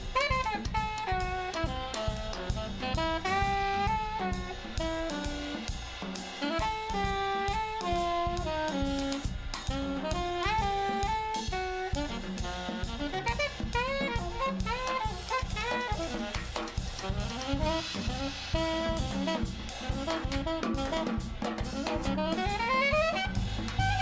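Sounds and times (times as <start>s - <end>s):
alto saxophone jazz solo: 0.0s - 24.0s
drum kit with cymbals: 0.0s - 24.0s.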